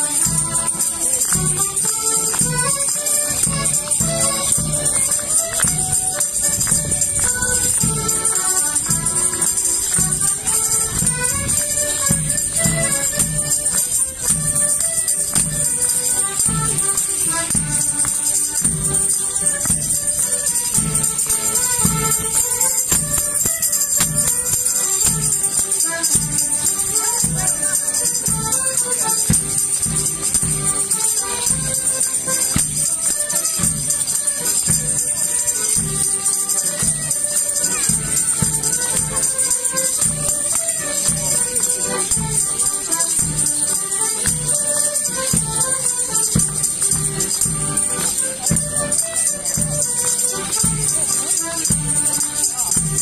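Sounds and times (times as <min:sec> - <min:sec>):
continuous high jingling: 0:00.0 - 0:53.0
folk dance tune: 0:00.0 - 0:53.0.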